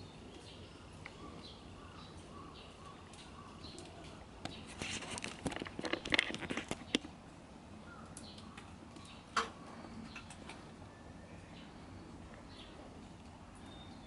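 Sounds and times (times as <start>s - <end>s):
close rustling and clicking: 3.0s - 7.2s.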